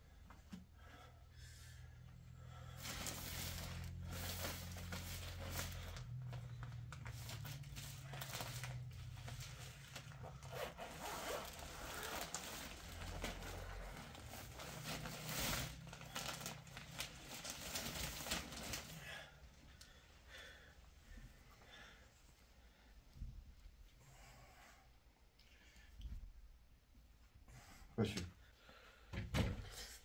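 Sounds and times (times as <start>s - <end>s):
plastic bags crackling and rustling: 2.8s - 19.3s.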